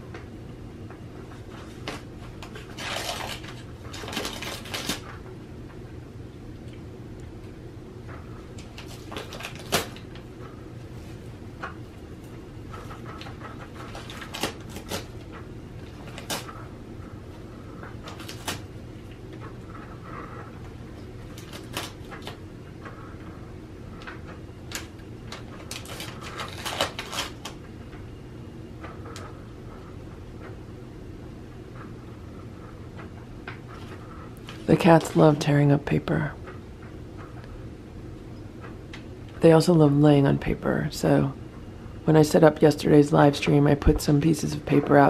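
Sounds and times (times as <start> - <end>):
steady low hum: 0.0 - 45.0
paper crinkling: 1.2 - 5.2, 8.5 - 10.2, 10.9 - 16.7, 17.8 - 19.9, 20.9 - 22.4, 24.0 - 27.6.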